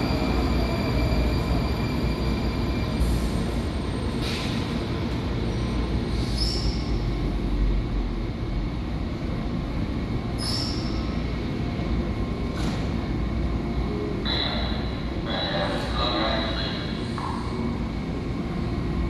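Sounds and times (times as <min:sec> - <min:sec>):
train rumbling into station: 0:00.0 - 0:19.0
high-pitched brake squeals: 0:06.2 - 0:06.9, 0:10.4 - 0:11.1.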